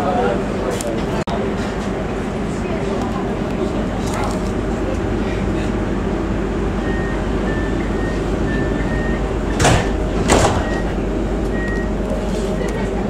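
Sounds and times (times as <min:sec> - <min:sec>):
tram humming: 0:00.0 - 0:13.0
high warning beep: 0:06.8 - 0:12.0
tram doors thudding shut: 0:07.2 - 0:12.0.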